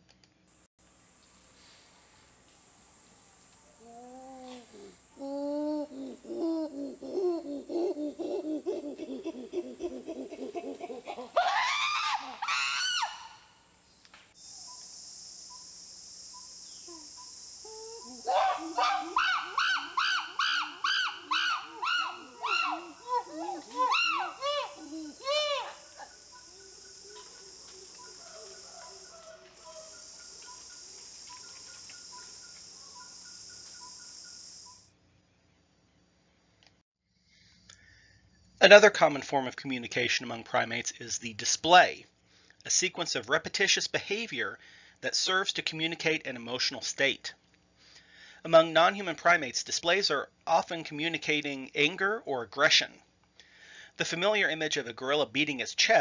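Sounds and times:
high insect chorus: 0:00.3 - 0:35.3, 0:37.1 - 0:38.8
chimpanzee panting hoots: 0:03.8 - 0:12.5, 0:16.9 - 0:30.0
chimpanzee screams: 0:03.8 - 0:13.5, 0:17.6 - 0:30.0.

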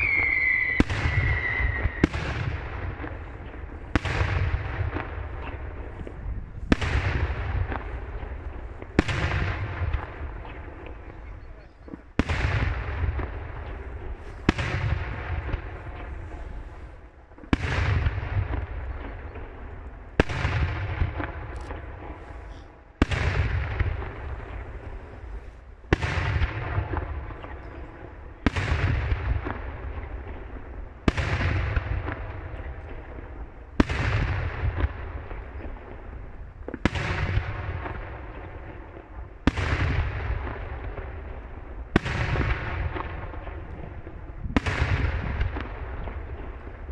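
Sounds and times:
fireworks bursting with rumbling echo: 0:00.0 - 0:46.9.

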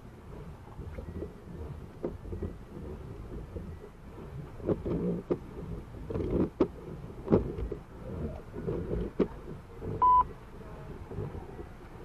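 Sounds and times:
wind and rain buffeting a car: 0:00.0 - 0:12.0
short electronic beep: 0:10.0 - 0:10.3.

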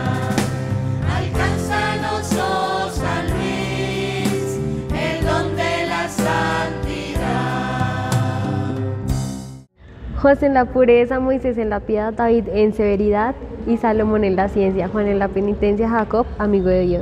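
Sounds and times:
choir singing a hymn: 0:00.0 - 0:09.3.

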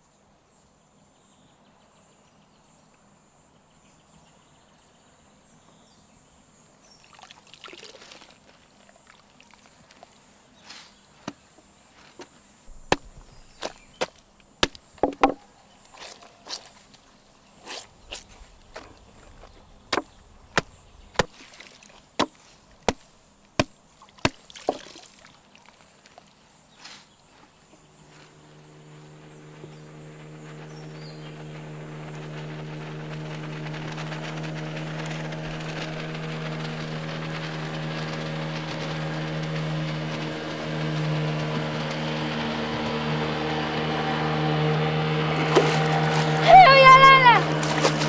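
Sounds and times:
boat motor droning: 0:14.6 - 0:23.0, 0:27.4 - 0:48.0.

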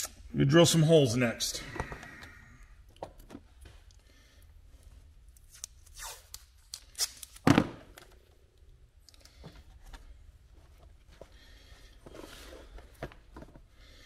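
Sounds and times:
tape tearing off roll: 0:05.4 - 0:08.0.

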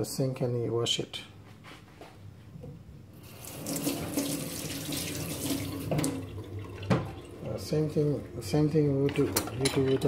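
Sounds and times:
water running into sink: 0:03.2 - 0:10.0
kitchen tap turned on: 0:03.3 - 0:07.6.

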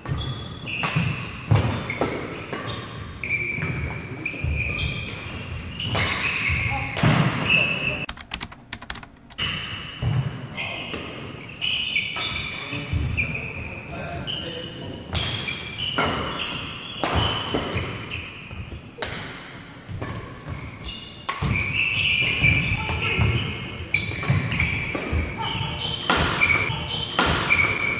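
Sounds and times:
shoes squeaking on court: 0:20.4 - 0:27.9.

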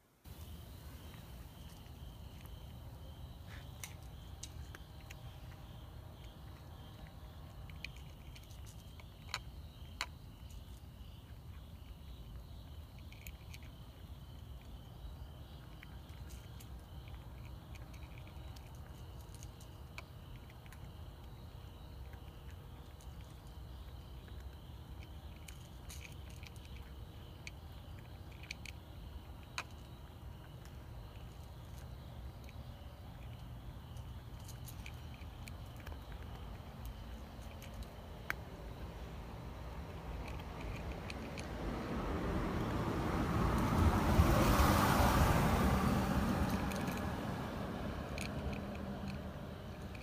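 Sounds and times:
cat chewing and licking: 0:15.5 - 0:38.9, 0:39.8 - 0:41.7, 0:43.5 - 0:50.0.

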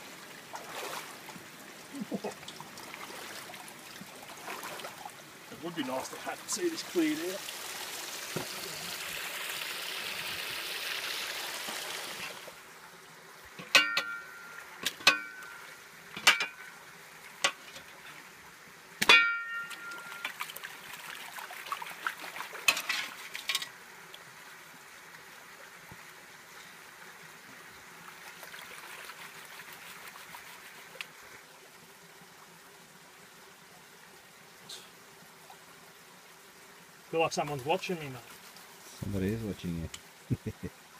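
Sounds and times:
creek water splashing: 0:00.0 - 0:40.9
sharp knocks and clinks: 0:13.6 - 0:15.6.

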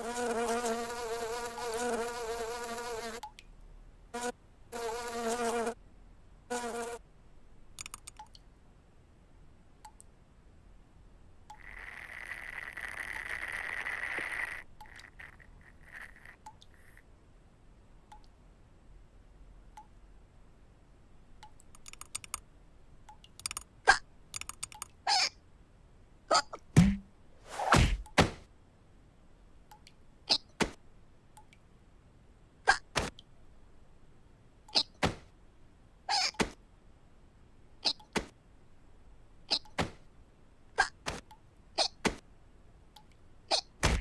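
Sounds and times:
light clicks and ticks: 0:07.8 - 0:08.5, 0:09.8 - 0:10.1, 0:18.1 - 0:18.4, 0:21.4 - 0:22.4, 0:23.1 - 0:23.7, 0:24.3 - 0:25.0, 0:29.7 - 0:30.0
cartoon fly buzzing: 0:11.6 - 0:16.4.

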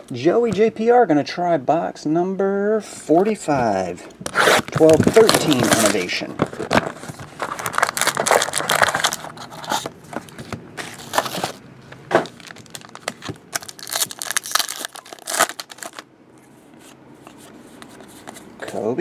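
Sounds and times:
foil wrapper tearing: 0:04.4 - 0:09.5, 0:12.3 - 0:16.0
cardboard and foil crinkling: 0:04.4 - 0:09.9, 0:10.8 - 0:11.6, 0:12.2 - 0:16.0.

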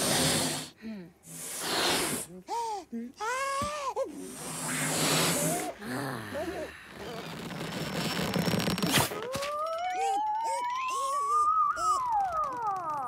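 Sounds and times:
rushing air hiss: 0:00.0 - 0:00.7, 0:01.3 - 0:02.3, 0:04.3 - 0:05.7
short squeaks: 0:07.0 - 0:13.0
squealing cartoon voice: 0:08.9 - 0:13.0
rising whistling tone: 0:09.5 - 0:13.0.

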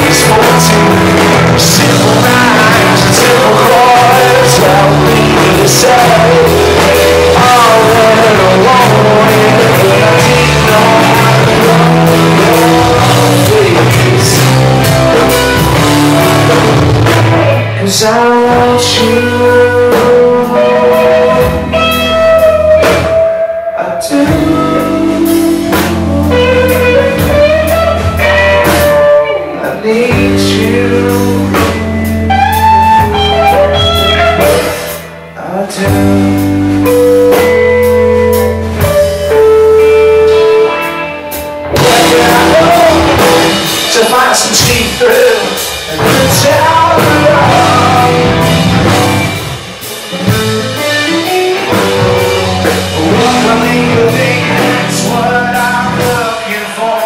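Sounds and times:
live rock band playing: 0:00.0 - 0:57.0
person singing: 0:00.0 - 0:57.0.

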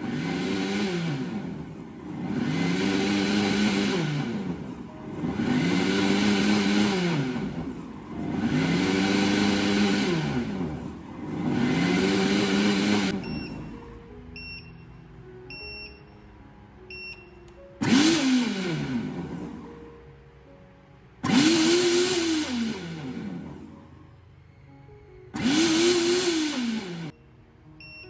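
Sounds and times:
blender motor pulsing: 0:00.0 - 0:13.7, 0:17.8 - 0:19.7, 0:21.2 - 0:23.8, 0:25.3 - 0:27.1
short beeps: 0:13.2 - 0:16.2, 0:16.9 - 0:17.5, 0:27.8 - 0:28.0.

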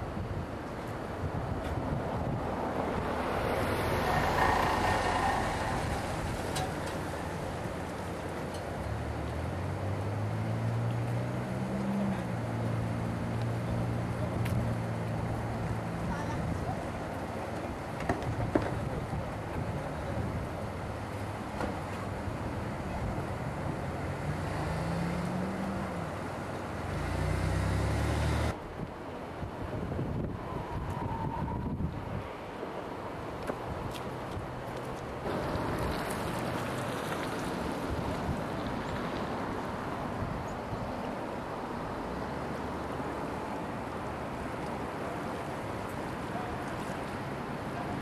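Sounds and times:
wind noise on microphone: 0:00.0 - 0:07.9, 0:28.4 - 0:32.4
rushing noise: 0:02.1 - 0:08.1
vehicle engine humming: 0:02.4 - 0:17.9
river flowing: 0:02.4 - 0:18.0, 0:19.3 - 0:29.4, 0:32.3 - 0:48.0
wind on microphone: 0:28.5 - 0:32.3.

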